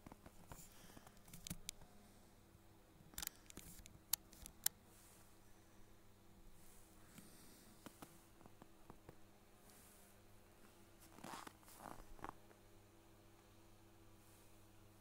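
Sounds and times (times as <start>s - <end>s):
sharp clicks: 3.1s - 4.8s.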